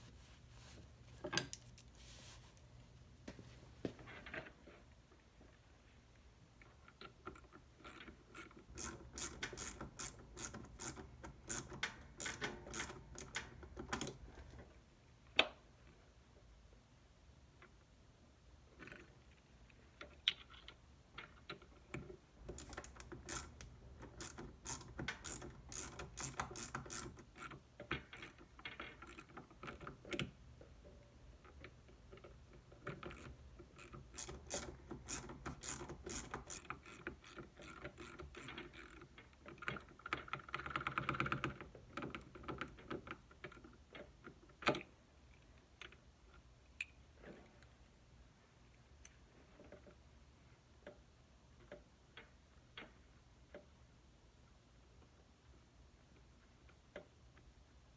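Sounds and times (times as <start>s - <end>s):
ratchet wrench clicking: 8.8s - 13.4s, 22.6s - 23.6s, 24.2s - 27.1s, 34.2s - 37.0s.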